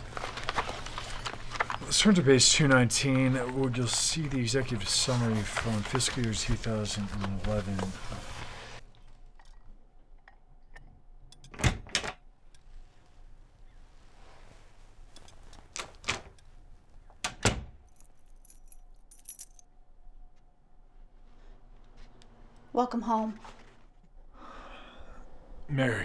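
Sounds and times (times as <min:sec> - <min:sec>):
keys jangling: 0:15.1 - 0:16.5, 0:17.9 - 0:19.7.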